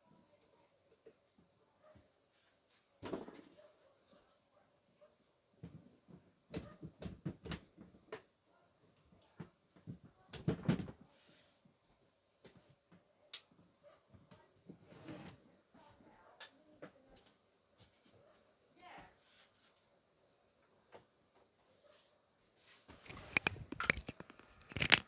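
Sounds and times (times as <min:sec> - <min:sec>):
rustle: 0:17.8 - 0:20.0, 0:20.6 - 0:24.9
objects clicking and knocking: 0:22.9 - 0:25.0.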